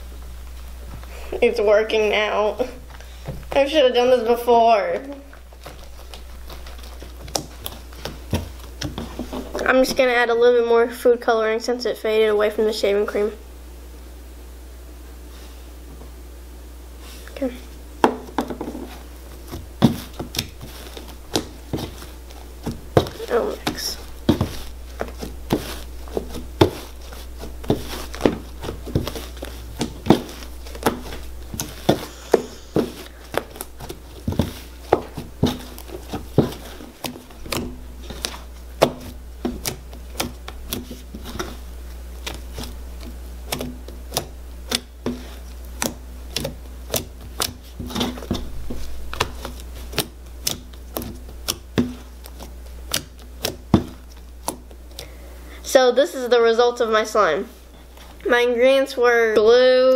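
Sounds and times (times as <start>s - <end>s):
slime clicking and popping: 49.1s - 53.7s.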